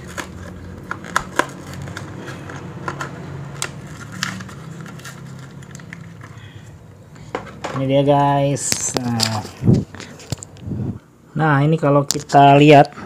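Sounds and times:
cardboard and plastic tearing: 0.0s - 6.5s.

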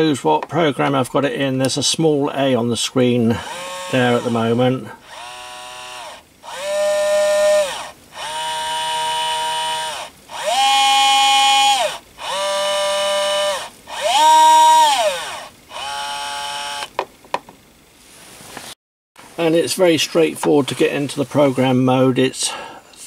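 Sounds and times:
electric screwdriver motor whining: 3.4s - 16.9s.

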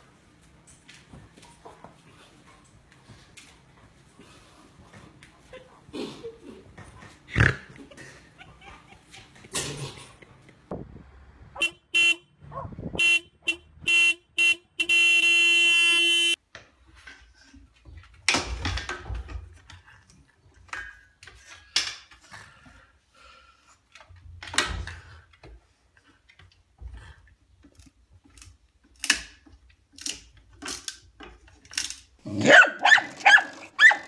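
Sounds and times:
car horn toots: 11.6s - 16.4s.

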